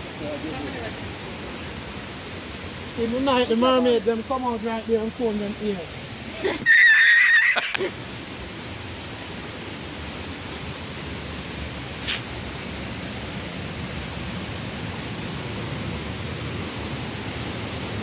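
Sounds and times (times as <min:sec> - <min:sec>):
falling water rushing: 0:00.0 - 0:18.0.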